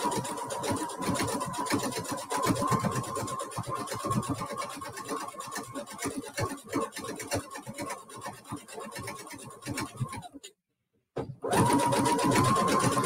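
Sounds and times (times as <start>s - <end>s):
sewing machine stitching: 0.0s - 10.5s, 11.3s - 13.0s.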